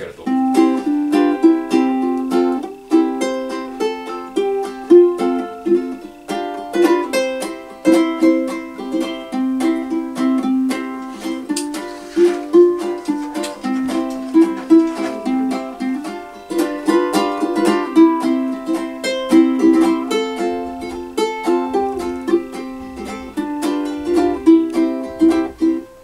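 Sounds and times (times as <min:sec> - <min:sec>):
fingerstyle ukulele: 0:00.2 - 0:26.0.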